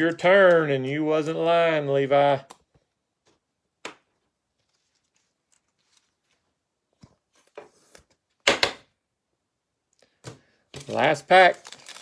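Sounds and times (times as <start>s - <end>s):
cards rustling: 0.0s - 3.4s, 4.4s - 8.4s, 10.0s - 12.0s.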